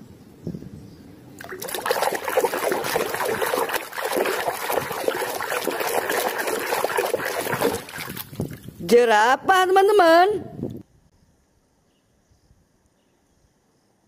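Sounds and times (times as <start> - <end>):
water sloshing in a plastic tub: 1.4 - 8.8.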